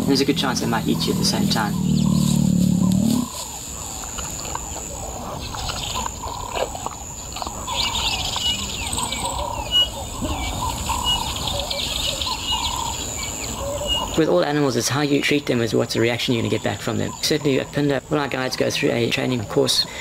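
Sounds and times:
low growl-like rumble: 0.0s - 3.5s
small birds chirping and whistling: 0.0s - 4.0s, 7.6s - 14.2s
steady high-pitched whine: 0.0s - 6.8s.

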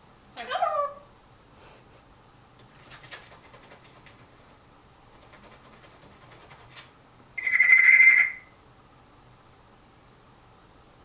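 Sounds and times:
trilling telephone ring: 7.4s - 8.5s.

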